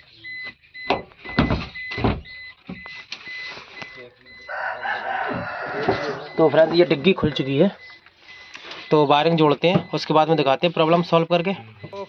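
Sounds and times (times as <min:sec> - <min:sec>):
rooster crowing: 0:04.5 - 0:07.0.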